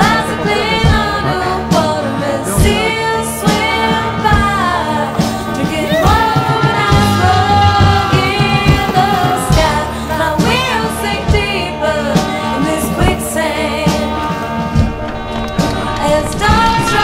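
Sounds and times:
song with singing over beat: 0:00.0 - 0:17.0.

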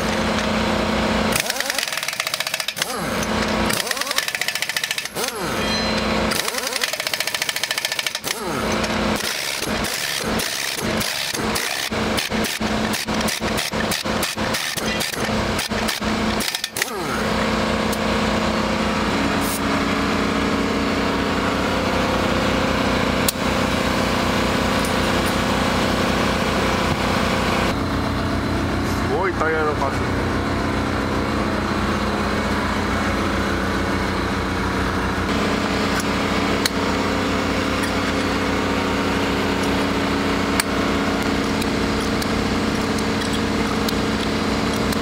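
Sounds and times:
steady mechanical running: 0:00.0 - 0:45.0
impact wrench hammering: 0:01.3 - 0:17.3.

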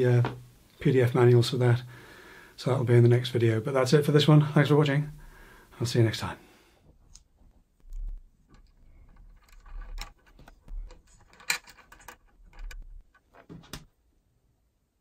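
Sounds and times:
metallic clicks of small bolts: 0:07.9 - 0:13.4.

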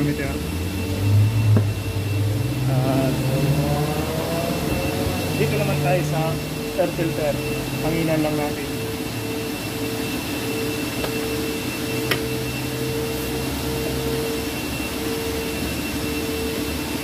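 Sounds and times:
machine hum with whine: 0:00.0 - 0:17.0.

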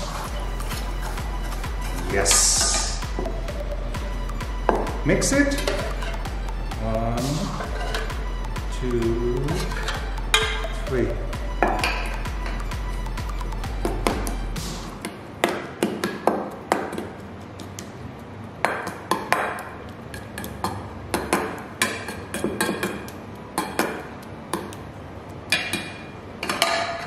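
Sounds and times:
metal spoon scraping steel bowl: 0:05.5 - 0:06.3, 0:07.4 - 0:08.3, 0:09.4 - 0:10.8.

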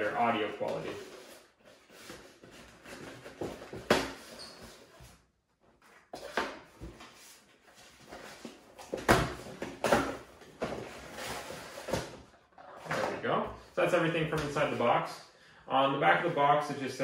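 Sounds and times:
cardboard boxes scraping and rustling: 0:10.6 - 0:13.1.

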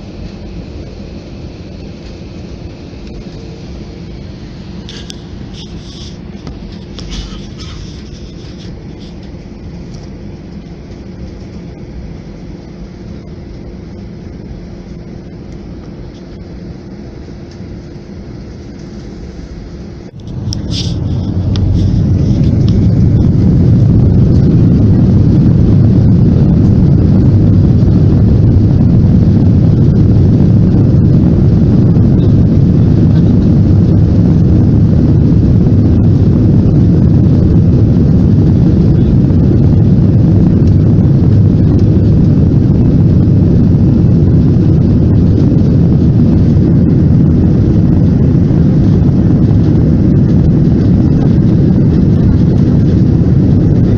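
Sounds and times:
jet engines rumbling in cabin: 0:00.0 - 0:53.9.

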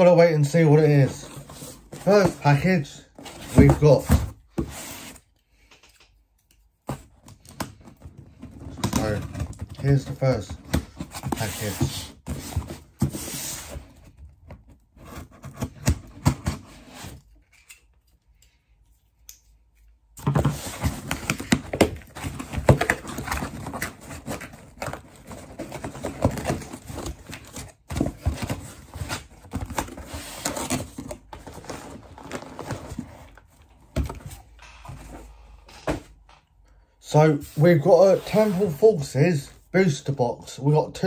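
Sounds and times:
cardboard box being unpacked: 0:06.9 - 0:17.3, 0:20.2 - 0:34.4.

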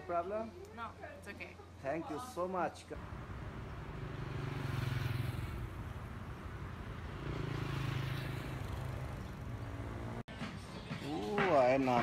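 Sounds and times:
road traffic engines humming: 0:03.0 - 0:10.4.

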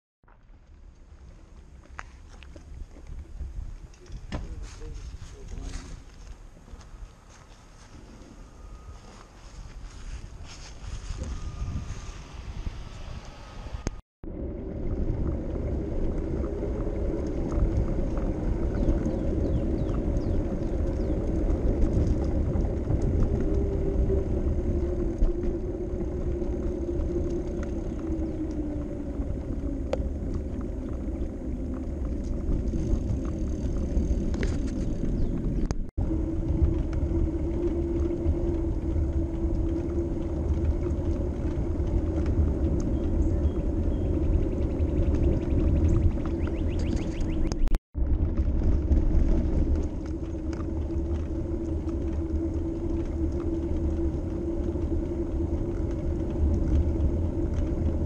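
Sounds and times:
bicycle tyre rumble: 0:00.2 - 0:58.0
wind rushing over microphone: 0:01.7 - 0:58.0
faint hum sliding lower: 0:04.5 - 0:17.6.

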